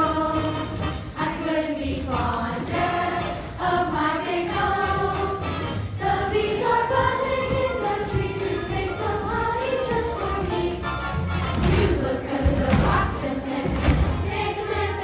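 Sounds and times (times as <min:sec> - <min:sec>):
musical accompaniment: 0:00.0 - 0:15.0
children singing in chorus: 0:06.0 - 0:10.5.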